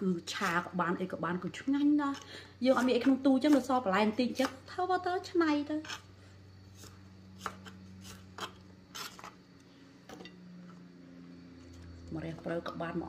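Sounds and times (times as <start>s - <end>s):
knife chopping on wooden board: 6.8s - 9.3s.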